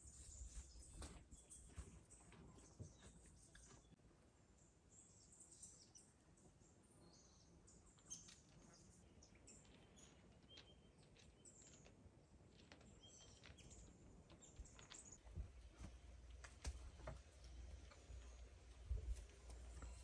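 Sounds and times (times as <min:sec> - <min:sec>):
faint bird chirps: 0:04.6 - 0:11.9.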